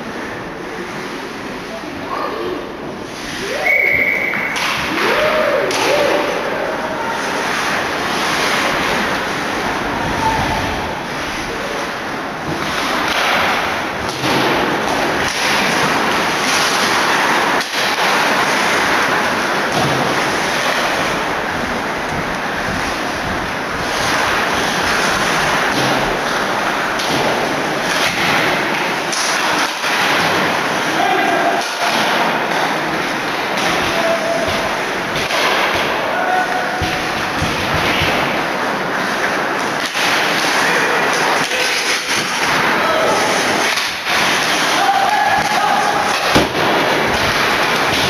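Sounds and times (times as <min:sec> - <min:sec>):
crowd cheering and shouting: 0:03.4 - 0:11.9, 0:44.4 - 0:46.7.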